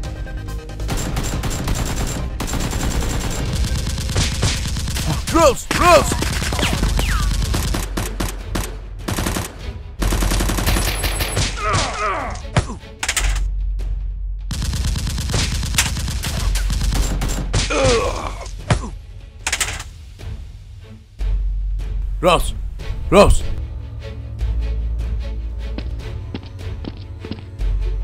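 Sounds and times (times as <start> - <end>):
automatic gunfire bursts: 0.9 - 5.2
man crying out: 5.1 - 6.2, 11.6 - 12.4, 17.7 - 18.5.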